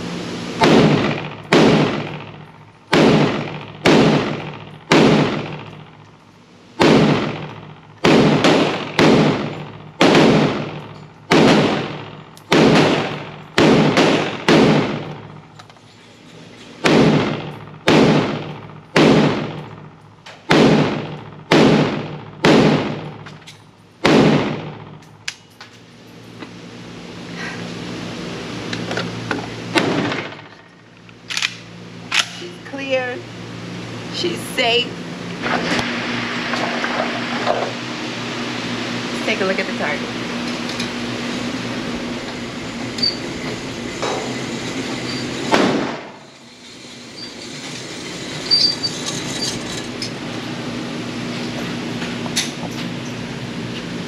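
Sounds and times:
gunshots echoing indoors: 0:00.6 - 0:06.0, 0:06.8 - 0:15.4, 0:16.8 - 0:23.2, 0:24.0 - 0:25.0, 0:29.7 - 0:30.5, 0:45.5 - 0:46.2.

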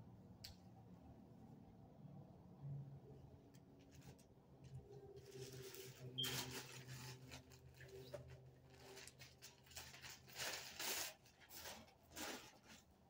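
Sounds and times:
plastic bag crinkling: 0:05.1 - 0:13.0.

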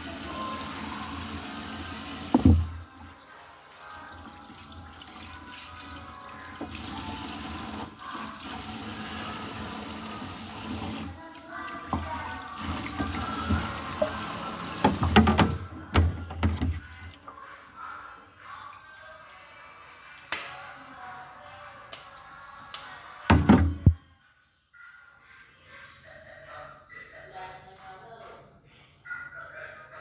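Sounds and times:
water running in a sink: 0:00.0 - 0:16.1.

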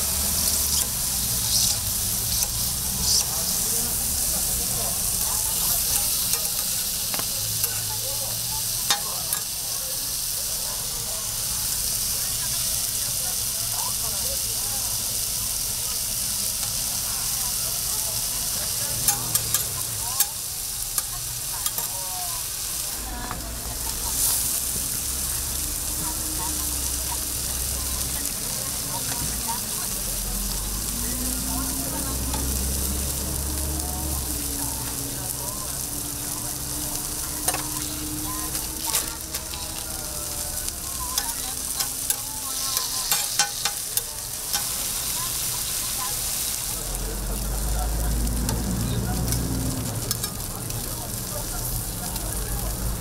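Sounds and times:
food sizzling on a griddle: 0:00.0 - 0:53.0.

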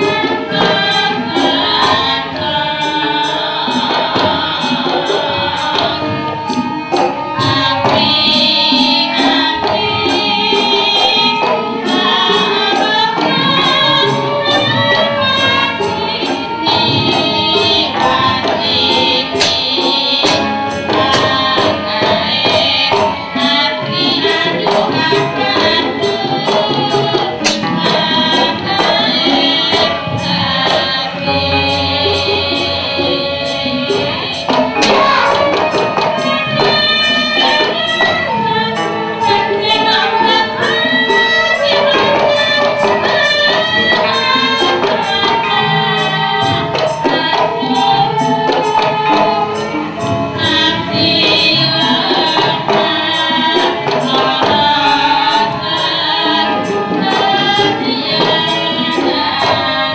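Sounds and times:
gamelan ensemble playing: 0:00.0 - 0:59.9
person singing: 0:00.0 - 0:59.9.

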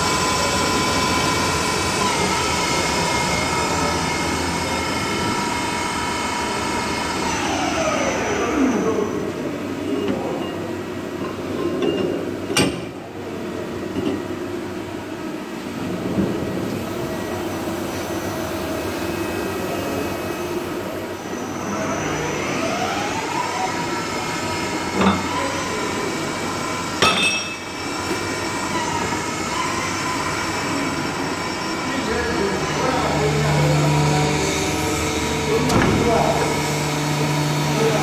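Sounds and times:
motor whine: 0:00.0 - 0:09.4, 0:27.8 - 0:38.0
machinery running: 0:00.0 - 0:09.8, 0:17.0 - 0:38.0.

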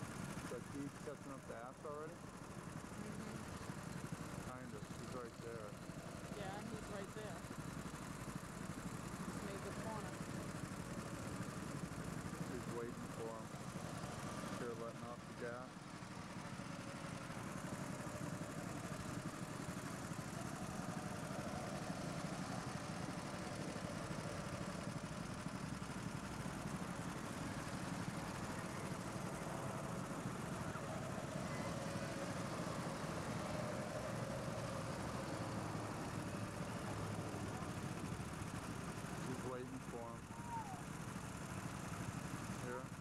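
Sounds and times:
go-kart engines droning: 0:00.0 - 0:43.0.

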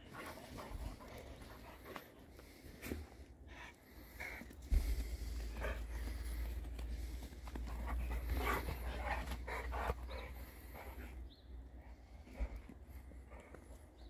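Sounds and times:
steady low rumble: 0:02.5 - 0:14.0
dog panting hard: 0:03.5 - 0:11.2.

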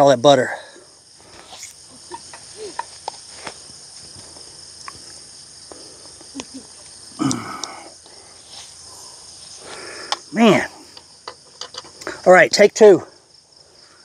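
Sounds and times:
crickets chirring: 0:00.0 - 0:14.0
breathy sigh: 0:07.2 - 0:10.2.

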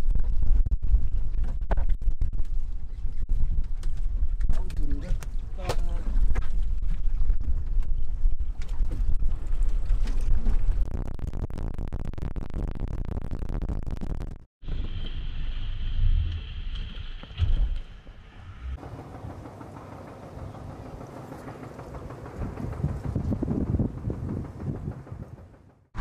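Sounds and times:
motorboat engine: 0:18.7 - 0:26.0
wind buffeting microphone: 0:19.2 - 0:26.0.

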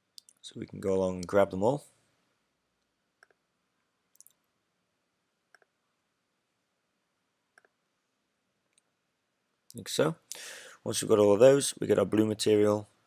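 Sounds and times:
computer mouse clicks: 0:03.2 - 0:03.4.

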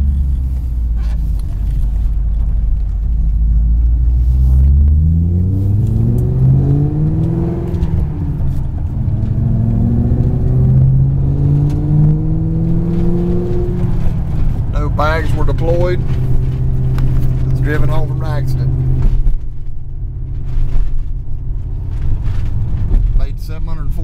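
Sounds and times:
car engine revving from inside cabin: 0:03.5 - 0:19.4.

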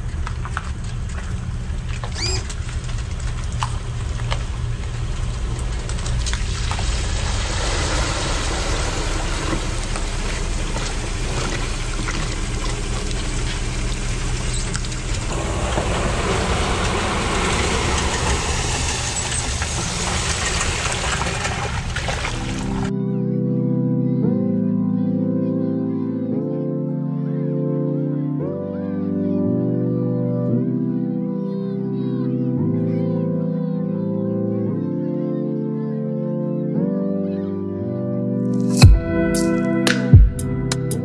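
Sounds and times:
pickup truck engine running: 0:00.0 - 0:22.9
water splashing up ramp: 0:00.0 - 0:22.9
brief squeal: 0:02.1 - 0:02.5.

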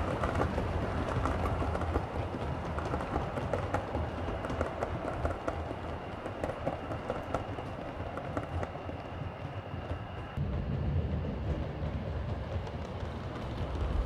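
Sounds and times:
wheels clicking over rail joints: 0:00.0 - 0:08.8
model train running rumble: 0:00.0 - 0:14.0.

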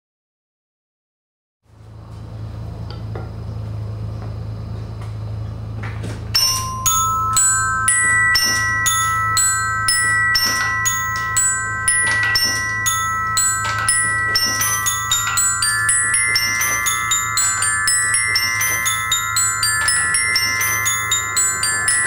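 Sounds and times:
steady low hum: 0:01.7 - 0:22.0
ball bearings striking tuned bars: 0:06.3 - 0:22.0.

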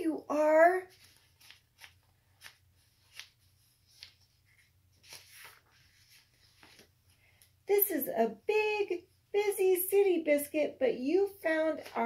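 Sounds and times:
book rustling and clicking: 0:00.9 - 0:07.5.

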